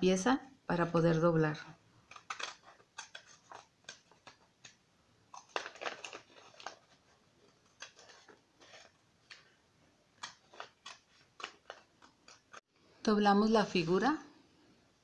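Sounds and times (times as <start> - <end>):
scissors snipping paper: 2.1 - 9.6.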